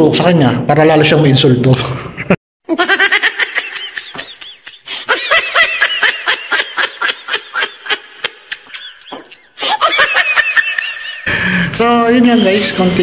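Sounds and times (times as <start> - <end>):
high-pitched rapid laughter: 2.7 - 11.3.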